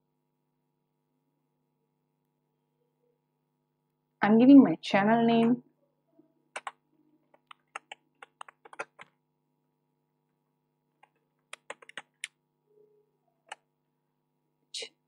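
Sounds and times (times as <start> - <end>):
typing on computer keyboard: 6.5 - 9.1, 11.0 - 12.4.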